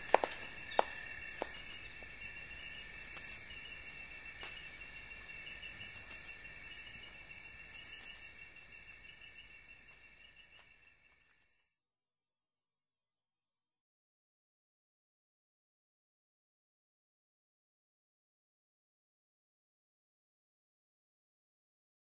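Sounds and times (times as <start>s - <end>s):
high insect trill: 0.0s - 11.7s
insects chirping: 0.0s - 11.7s.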